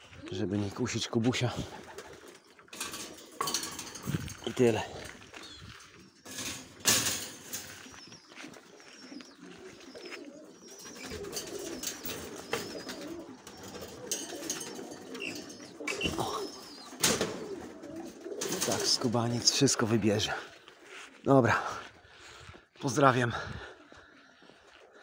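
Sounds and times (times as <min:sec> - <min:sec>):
pigeons cooing: 0:00.0 - 0:22.5, 0:23.4 - 0:25.0.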